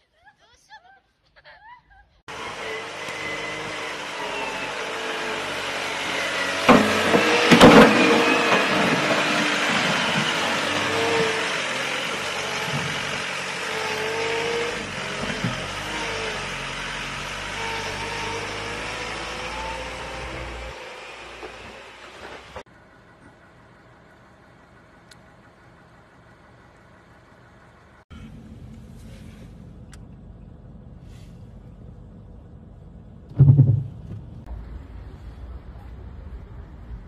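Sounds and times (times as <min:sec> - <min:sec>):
truck engine running: 0:02.3 - 0:37.0
loud knocks or clanks: 0:06.6 - 0:09.4, 0:33.4 - 0:34.4.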